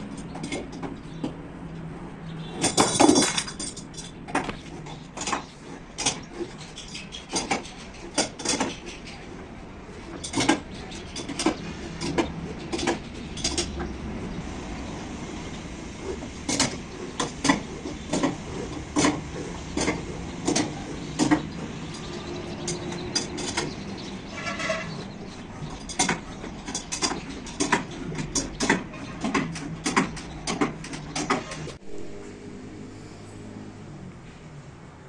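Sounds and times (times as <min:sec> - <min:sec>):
wrench clicks and clanks: 0:02.6 - 0:09.3, 0:10.1 - 0:13.9, 0:16.4 - 0:31.8.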